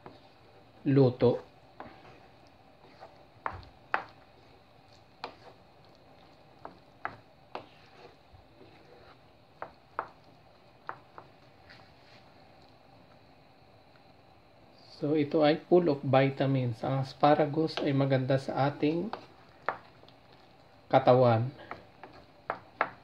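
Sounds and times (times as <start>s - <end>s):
spoon stirring thick risotto: 0.0s - 12.8s, 17.0s - 23.0s
wooden spoon knocking on pan: 3.4s - 4.2s, 9.6s - 10.2s, 21.6s - 23.0s.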